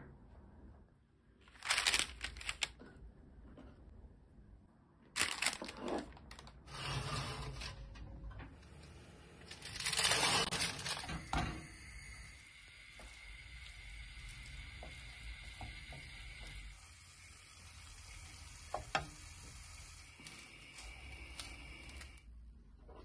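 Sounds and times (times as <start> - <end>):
parchment paper crinkling: 1.4 - 2.8, 5.2 - 6.5, 9.5 - 11.1.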